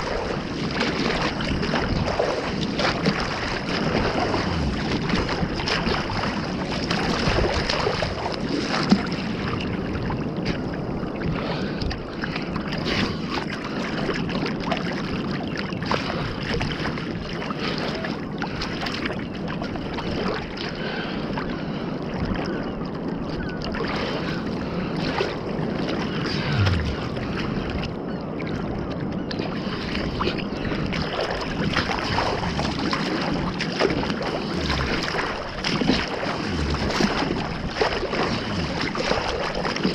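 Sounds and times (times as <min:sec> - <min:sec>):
sea water sloshing and lapping: 0:00.0 - 0:39.9
small splashes and gurgles: 0:00.0 - 0:39.9.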